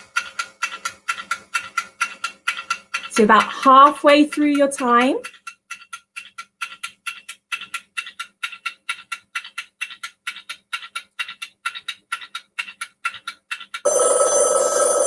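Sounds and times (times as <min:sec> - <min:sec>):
rapid timer ticking: 0:00.0 - 0:15.0
loud alarm: 0:13.9 - 0:15.0.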